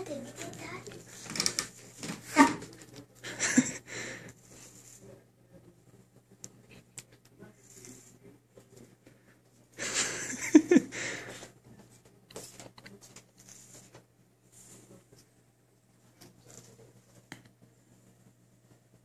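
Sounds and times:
person wheezy breathing: 3.8s - 4.3s, 10.9s - 11.5s.

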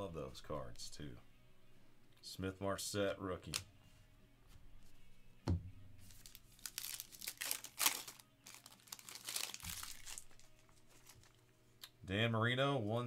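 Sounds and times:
knock on table: 5.4s - 5.7s
foil wrapper crinkling and tearing: 6.0s - 11.5s.

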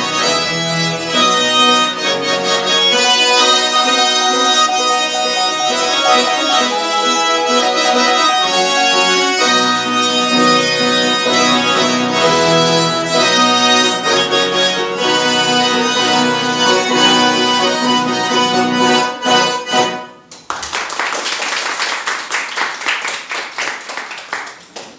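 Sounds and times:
accordions playing a duet: 0.0s - 20.3s
applause: 20.3s - 24.9s.

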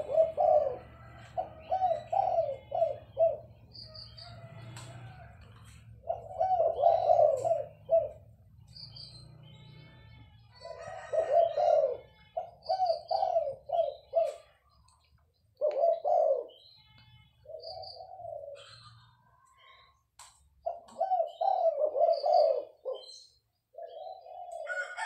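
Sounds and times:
dove cooing: 0.0s - 8.6s, 9.2s - 14.8s, 15.6s - 16.7s, 17.4s - 19.7s, 20.6s - 25.0s
small birds chirping: 0.0s - 24.9s.

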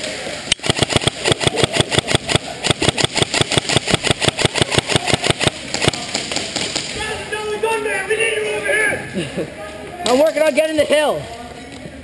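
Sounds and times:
airsoft rifle full-auto burst: 0.5s - 6.8s.

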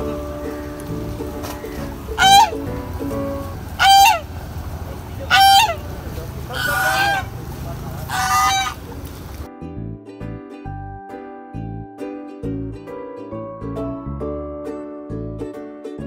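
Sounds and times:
goose honking: 1.4s - 7.4s, 8.0s - 8.9s.

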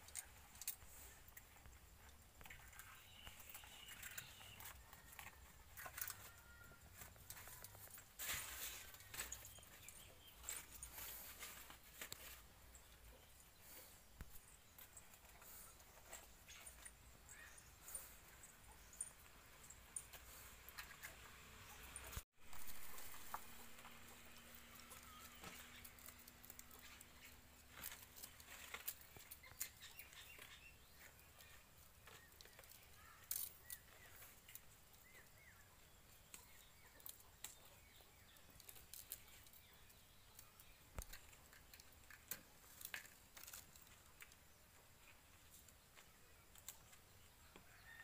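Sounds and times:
faint bird chirps: 2.4s - 20.5s
dry leaves and paper rustling: 2.5s - 13.8s, 22.1s - 34.7s, 35.9s - 47.1s.

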